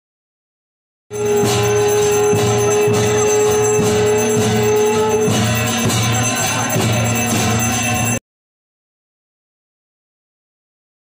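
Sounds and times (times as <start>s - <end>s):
bells ringing: 1.1s - 8.2s
long held note: 1.1s - 8.2s
steady drum beat: 1.1s - 8.2s.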